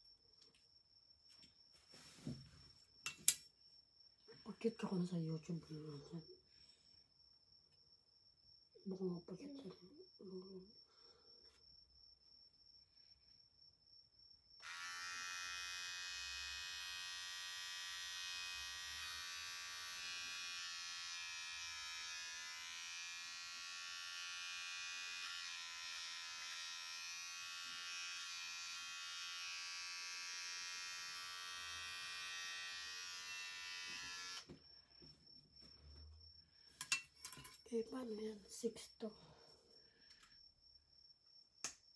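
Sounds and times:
electric hair clipper buzzing: 0:14.6 - 0:34.5.

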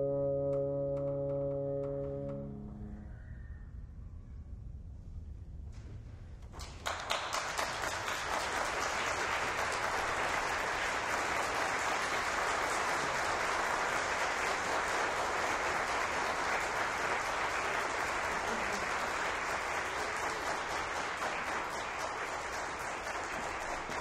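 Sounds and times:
audience applause: 0:06.6 - 0:24.0.

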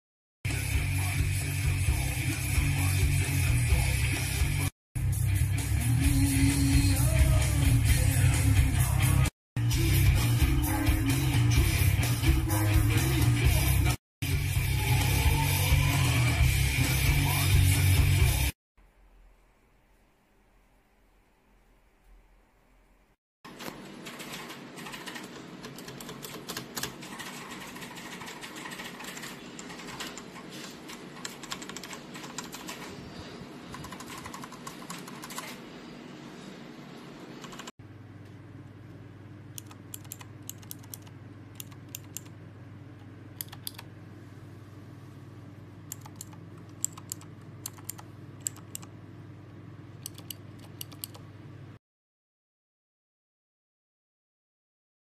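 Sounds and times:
mechanical keyboard key clicks: 0:45.9 - 0:48.9, 0:50.0 - 0:51.2.

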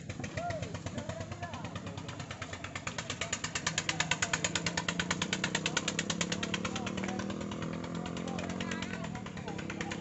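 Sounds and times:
boat engine chugging: 0:00.0 - 0:10.0.

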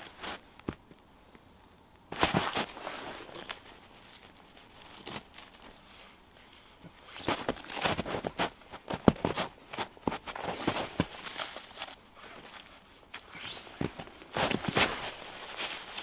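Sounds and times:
tarp rustling and clicking: 0:02.1 - 0:06.1, 0:07.0 - 0:16.0
boots crunching in snow: 0:07.0 - 0:16.0.

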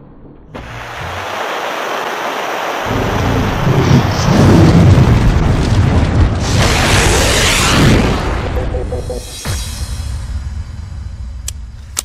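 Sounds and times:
deep rumble: 0:02.9 - 0:11.8.

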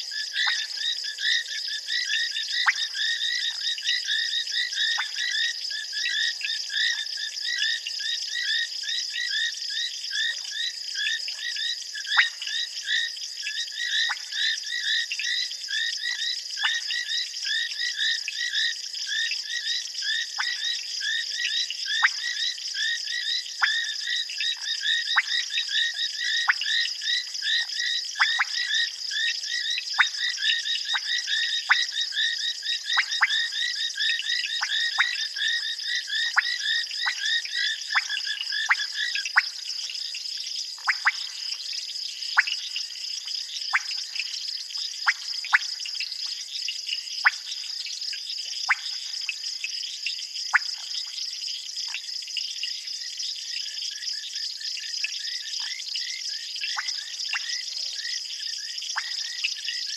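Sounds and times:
frogs chirping: 0:00.0 - 0:59.9.

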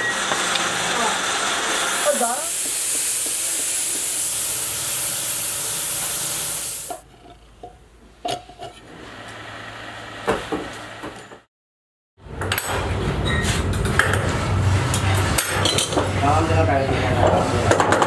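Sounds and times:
loud steady hiss: 0:01.4 - 0:07.0.

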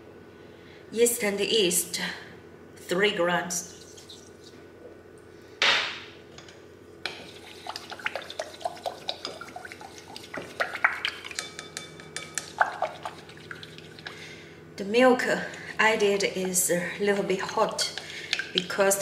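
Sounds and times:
utensil tapping glass bowl: 0:07.1 - 0:14.0, 0:17.7 - 0:18.8.

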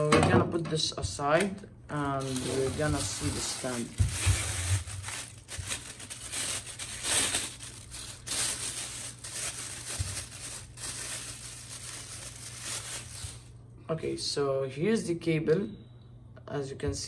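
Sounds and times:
plastic bag crinkling: 0:01.9 - 0:13.6.

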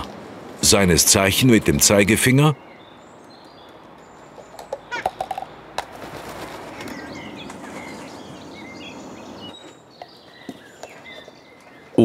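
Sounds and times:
small birds chirping: 0:00.7 - 0:12.0
cups clicking and knocking: 0:04.4 - 0:05.9
rustling: 0:04.4 - 0:08.4.

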